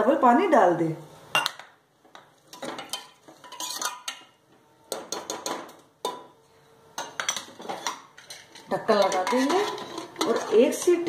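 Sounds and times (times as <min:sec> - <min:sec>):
ladle scraping a metal pot: 0:02.5 - 0:04.2, 0:07.2 - 0:11.0.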